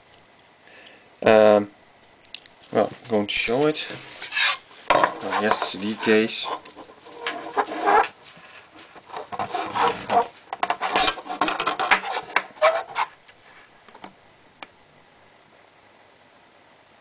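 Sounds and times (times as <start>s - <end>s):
plastic cd case clicking and rattling: 9.0s - 13.0s.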